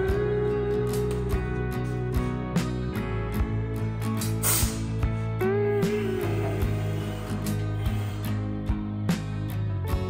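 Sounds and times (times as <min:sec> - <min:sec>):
guitar music with steady beat: 0:00.0 - 0:10.0
short hiss: 0:04.2 - 0:05.0.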